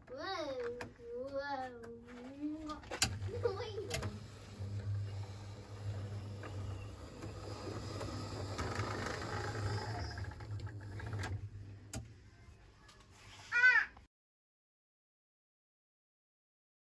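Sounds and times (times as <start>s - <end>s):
model train motor hum: 3.0s - 12.0s.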